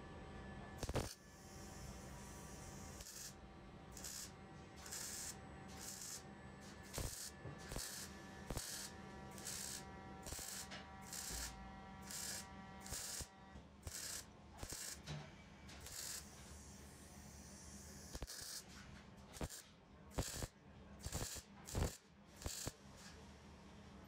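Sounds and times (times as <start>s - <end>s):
welder arc bursts: 0.8s - 6.2s, 6.8s - 15.0s, 15.8s - 16.4s, 18.0s - 18.6s, 19.4s - 22.8s.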